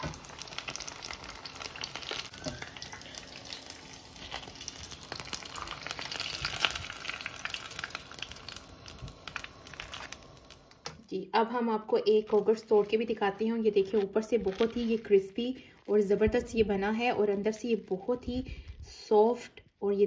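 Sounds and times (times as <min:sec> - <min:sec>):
food deep-frying in oil: 0:00.0 - 0:11.0.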